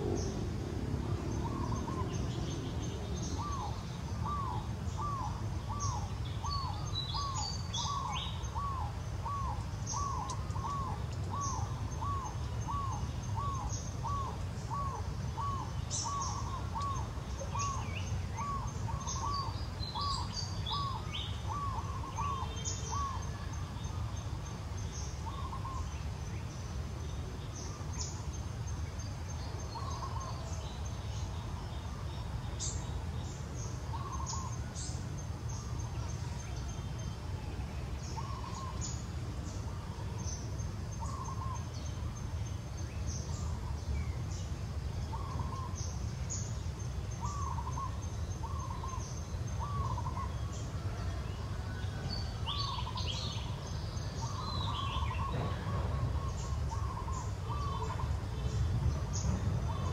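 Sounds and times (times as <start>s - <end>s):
steady low rumble: 0.0s - 6.5s.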